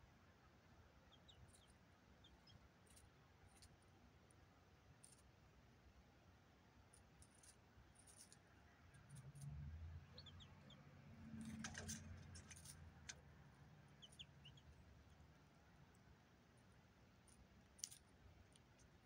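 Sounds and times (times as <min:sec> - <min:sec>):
faint bird chirps: 0:01.0 - 0:03.0, 0:10.0 - 0:10.9, 0:13.9 - 0:15.3.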